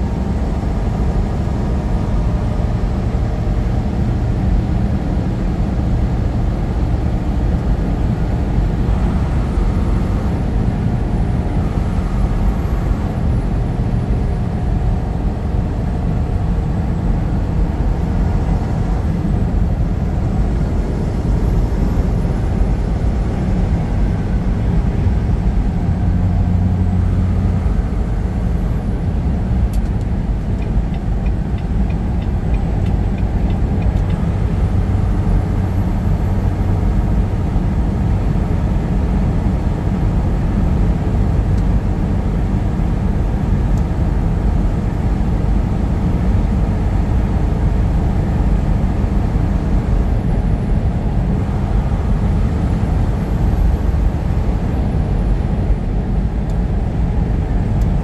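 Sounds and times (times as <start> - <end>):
road noise: 0.0 - 58.0
truck engine drone: 0.0 - 58.0.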